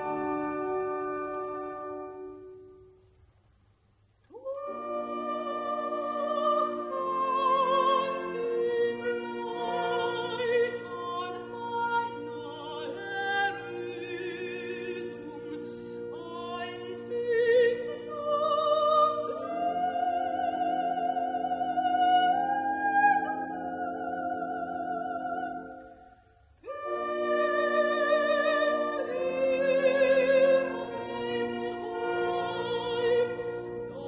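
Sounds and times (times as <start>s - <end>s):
orchestra playing: 0.0s - 2.8s
soprano singing operatically: 4.3s - 34.0s.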